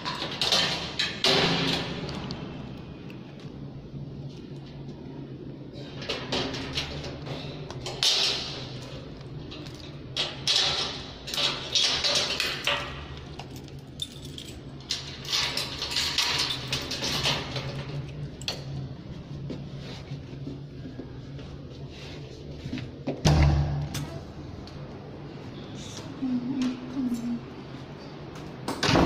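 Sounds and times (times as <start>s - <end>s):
keys jangling in gate lock: 9.6s - 17.6s.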